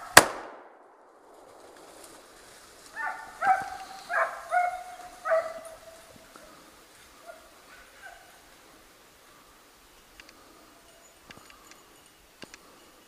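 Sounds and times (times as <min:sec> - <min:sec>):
hunting dog baying: 0:02.9 - 0:08.9.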